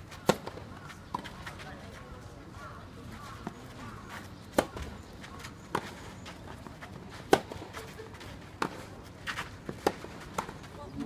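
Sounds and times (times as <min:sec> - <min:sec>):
racket hitting tennis ball: 0:00.2 - 0:01.3, 0:07.2 - 0:07.8, 0:08.6 - 0:10.6.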